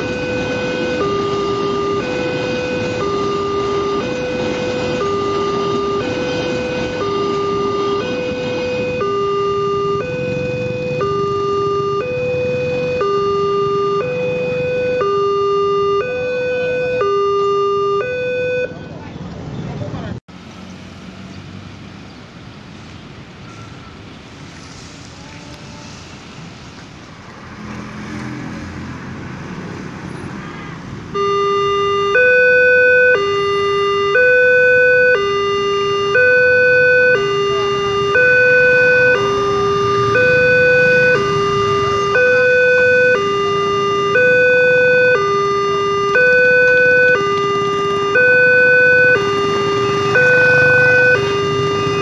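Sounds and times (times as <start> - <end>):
level-crossing two-tone alarm: 0.0 - 18.9, 31.1 - 52.0
motorbikes passing: 0.0 - 52.0.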